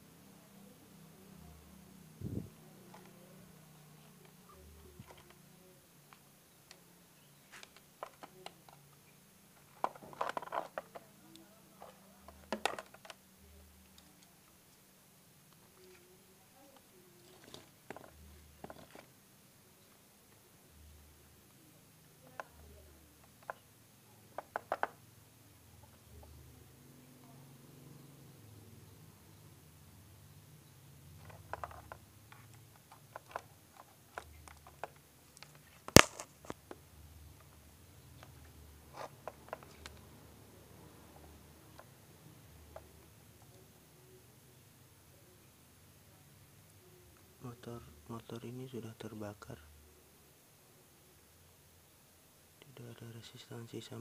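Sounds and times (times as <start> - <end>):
faint steady hum: 0.0 - 54.0
clicks and rattles of wires: 9.6 - 13.2, 31.2 - 36.8.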